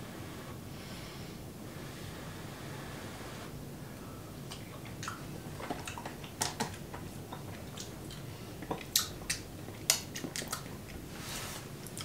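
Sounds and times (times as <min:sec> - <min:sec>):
quiet chewing: 0:04.5 - 0:11.1.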